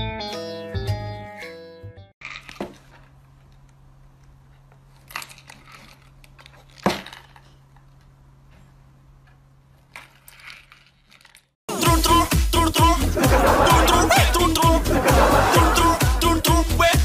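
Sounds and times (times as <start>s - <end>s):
cardboard rustling and scraping: 2.2s - 3.6s.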